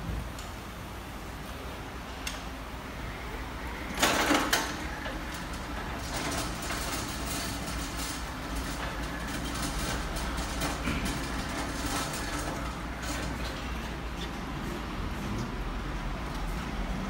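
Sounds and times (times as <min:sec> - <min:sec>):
pallet truck rolling over steel plate: 0:03.8 - 0:14.0
loud metallic clatter of wheels: 0:03.9 - 0:14.0.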